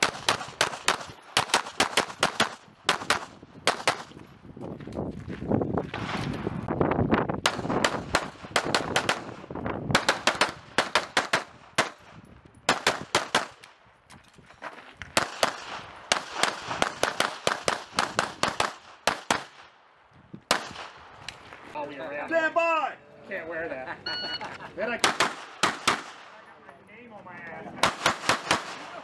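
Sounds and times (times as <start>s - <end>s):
pistol shots: 0.0s - 4.1s, 7.4s - 12.0s, 12.7s - 13.7s, 15.2s - 19.6s, 25.0s - 26.3s, 27.8s - 29.0s.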